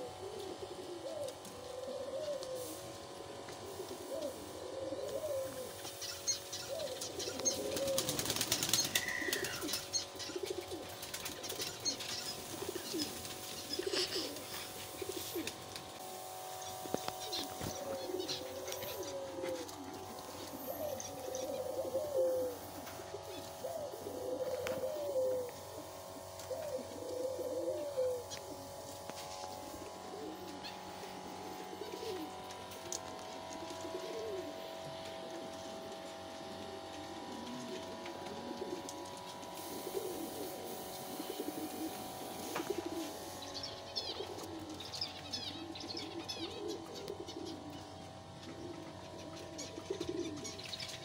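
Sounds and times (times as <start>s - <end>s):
pigeons cooing: 0.0s - 51.0s
small bird chirping: 8.6s - 10.5s.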